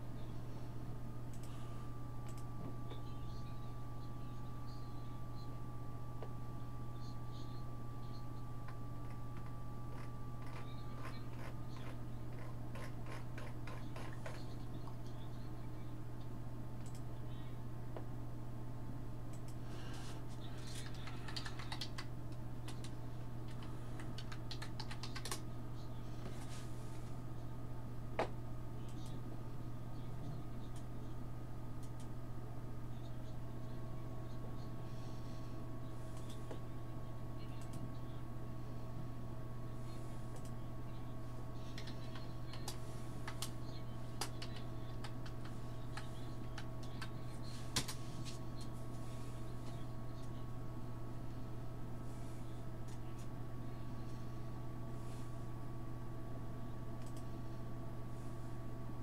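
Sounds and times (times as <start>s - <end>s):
steady low hum: 0.0s - 59.0s
typing on computer keyboard: 20.8s - 22.9s, 23.5s - 25.4s.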